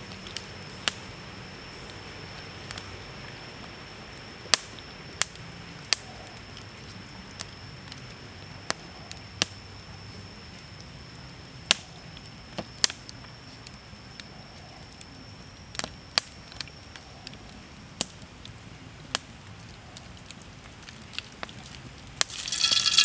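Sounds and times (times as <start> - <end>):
sharp clicks and crackles: 19.5 - 23.0.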